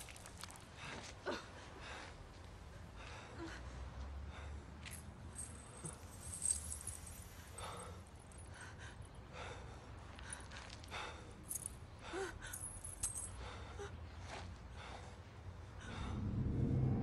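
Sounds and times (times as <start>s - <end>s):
metal chain jingling: 4.9s - 8.6s, 12.4s - 13.5s
steady low hum: 15.1s - 17.0s.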